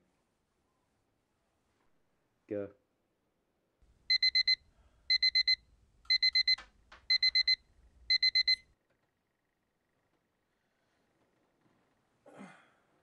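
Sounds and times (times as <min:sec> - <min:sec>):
alarm clock beeping: 0:04.1 - 0:08.6.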